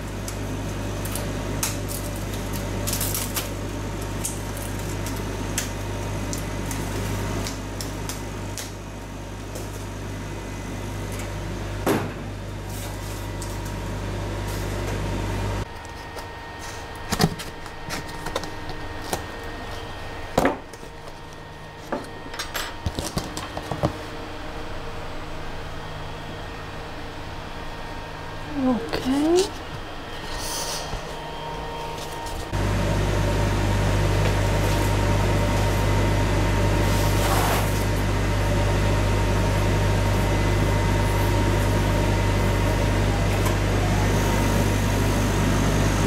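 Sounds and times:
laser cutter humming: 24.3s - 46.0s.

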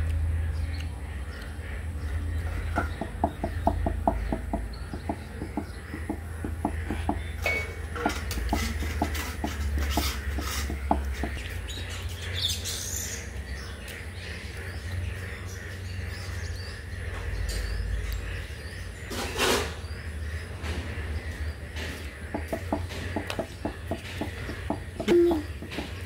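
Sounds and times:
birds chirping: 0.0s - 26.0s
steady low rumble: 10.8s - 19.2s.

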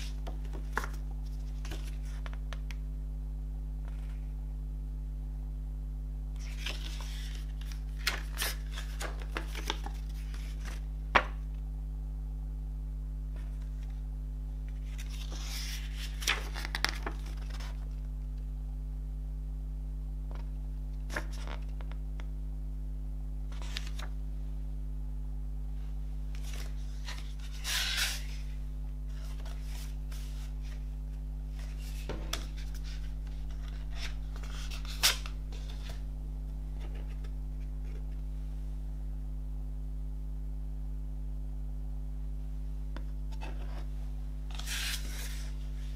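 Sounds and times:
paper pages rustling: 0.0s - 2.8s, 6.4s - 11.4s, 14.7s - 18.1s, 23.5s - 24.1s, 26.4s - 28.5s, 29.1s - 30.9s, 31.5s - 36.1s, 44.5s - 45.9s
steady low hum: 0.0s - 45.9s.

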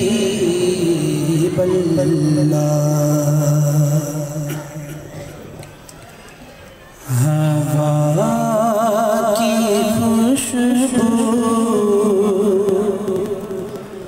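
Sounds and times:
man singing devotional song: 0.0s - 5.1s, 7.0s - 14.0s.

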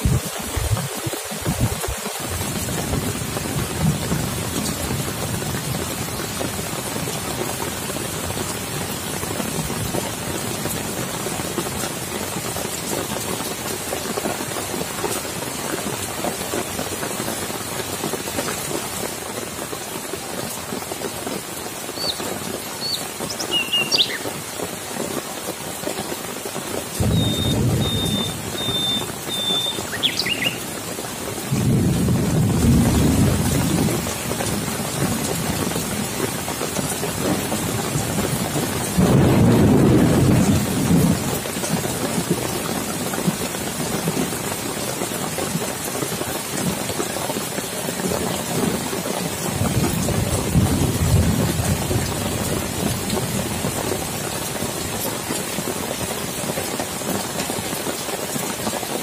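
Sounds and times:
rain falling on leaves: 0.0s - 59.0s
thunder rolling: 27.0s - 30.0s, 39.0s - 41.2s.

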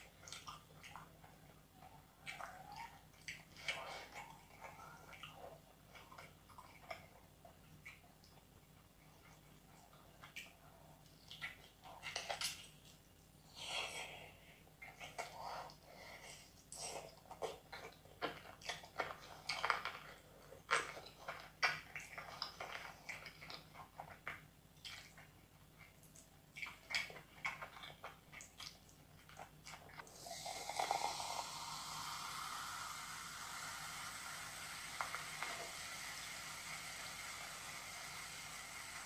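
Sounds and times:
wet chewing and lip smacks: 0.0s - 13.2s, 14.8s - 30.1s
food squishing: 14.8s - 37.6s
cola fizzing pour into glass: 30.1s - 39.0s.

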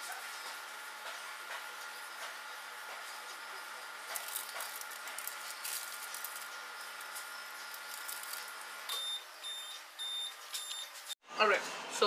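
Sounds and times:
microwave oven humming: 0.0s - 12.0s
pork rinds crackling and popping: 4.0s - 9.2s
microwave short high beeps: 8.9s - 11.0s.

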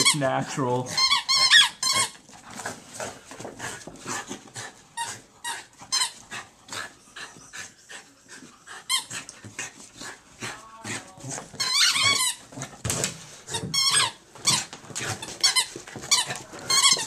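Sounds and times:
squeaky toy squeaks: 0.0s - 0.3s, 0.9s - 2.2s, 11.6s - 12.5s, 13.5s - 14.6s, 15.3s - 17.0s
dog panting: 0.0s - 17.0s.

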